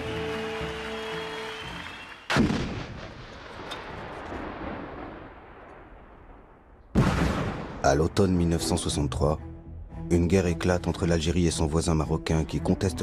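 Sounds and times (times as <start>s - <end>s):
music: 0.0s - 2.3s, 7.8s - 13.0s
artillery fire blast with rumble: 2.3s - 7.9s.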